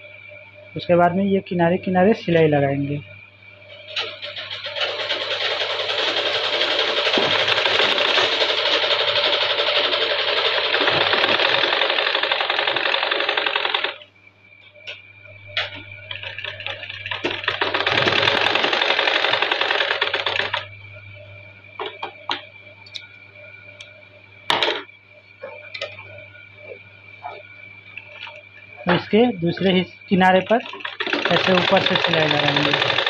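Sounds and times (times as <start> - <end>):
sewing machine stitching: 4.0 - 14.0, 16.1 - 20.6, 30.6 - 33.0.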